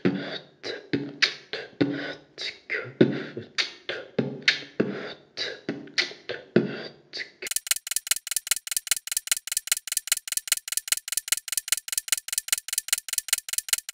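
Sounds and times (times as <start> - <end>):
beatbox percussive hits: 7.5 - 13.9
fast thin ticking: 7.5 - 13.9.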